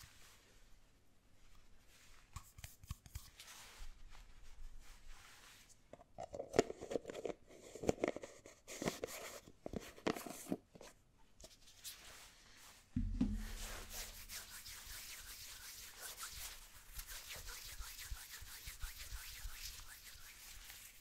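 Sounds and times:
low thump: 13.0 - 13.8
fingers rubbing gel: 13.4 - 21.0.

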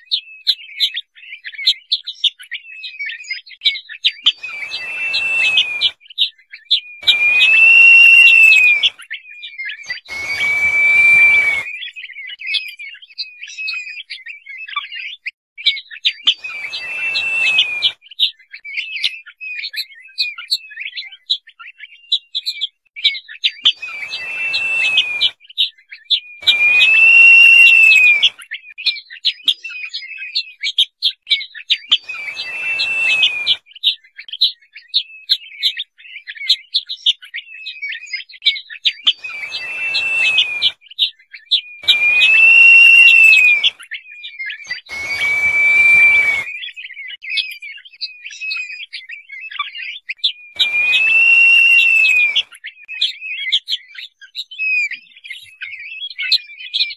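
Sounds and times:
bird whistling plaintively: 0.0 - 14.8, 15.6 - 29.0, 31.9 - 34.0, 37.4 - 47.2, 47.8 - 56.9
short bird chirps: 4.2 - 9.0, 9.8 - 12.0, 15.7 - 18.0, 23.7 - 25.7, 26.4 - 28.4, 32.0 - 33.6, 39.0 - 43.8, 44.6 - 47.5, 50.2 - 52.5
hiss: 4.4 - 5.9, 7.0 - 8.9, 10.1 - 11.6, 16.4 - 17.9, 23.8 - 25.3, 26.4 - 28.3, 32.1 - 33.6, 39.2 - 40.7, 41.8 - 43.7, 44.9 - 46.4, 50.6 - 52.4.

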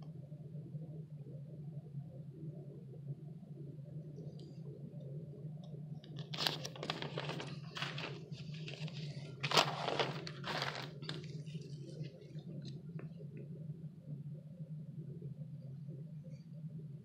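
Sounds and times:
steady low hum: 0.0 - 17.0
paper rustling and crinkling: 6.0 - 13.1.

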